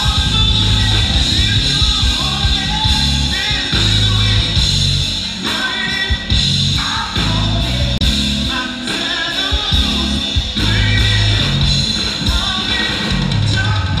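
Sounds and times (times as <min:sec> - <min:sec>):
live rock band playing: 0:00.0 - 0:14.0
person singing: 0:00.0 - 0:14.0.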